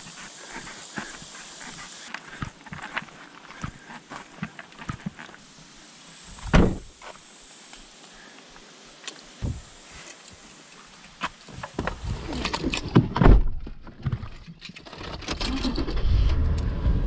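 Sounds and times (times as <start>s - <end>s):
car engine rumble: 15.6s - 17.0s.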